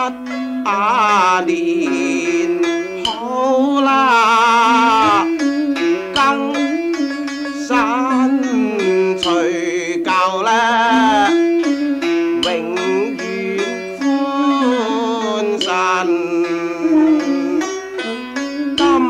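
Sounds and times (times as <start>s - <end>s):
string instruments playing melody: 0.0s - 19.0s.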